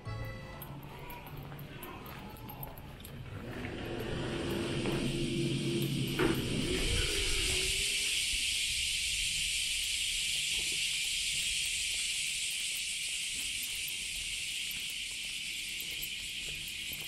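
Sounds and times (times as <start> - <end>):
high-pitched insect chorus: 3.7 - 17.0.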